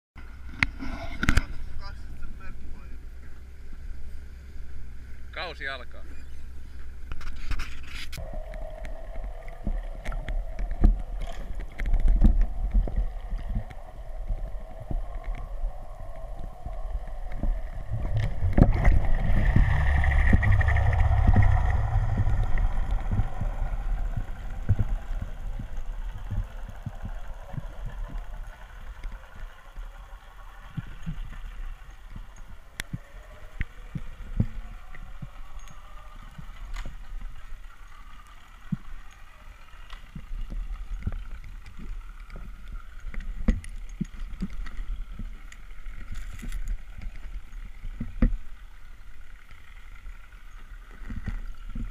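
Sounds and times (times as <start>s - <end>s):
faint steady whine: 0.2s - 51.9s
underwater rumble of water: 0.2s - 51.9s.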